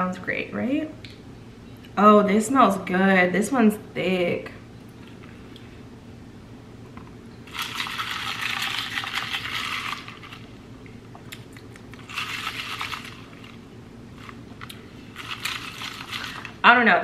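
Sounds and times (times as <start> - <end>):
slurping through a plastic straw: 15.1 - 16.6.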